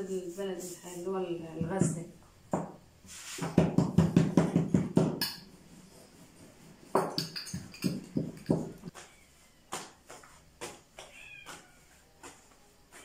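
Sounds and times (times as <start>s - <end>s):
dough patted by hand: 3.4s - 5.4s, 7.0s - 13.0s
rolling pin knocking and rolling: 3.4s - 5.5s, 6.9s - 8.9s.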